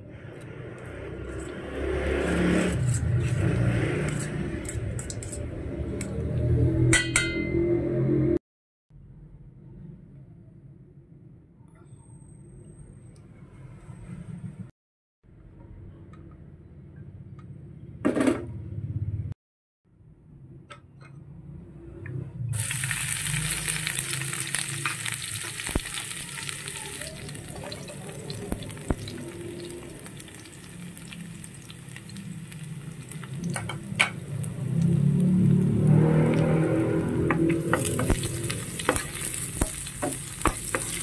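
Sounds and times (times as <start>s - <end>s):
stirring clicks: 4.1s - 5.4s
food sizzling in hot oil: 22.6s - 41.0s.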